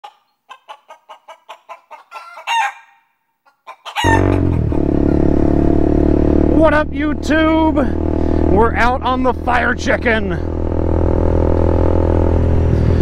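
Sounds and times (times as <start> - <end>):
chicken clucking: 0.0 - 4.8
chicken squawking: 0.0 - 4.9
motorcycle engine running: 4.0 - 13.0.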